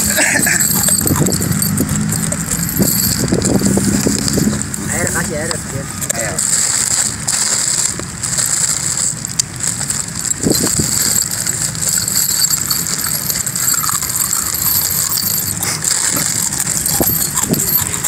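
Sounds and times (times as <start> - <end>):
nails clinking and rattling: 0.0 - 18.0
plastic bag crinkling: 0.0 - 18.0.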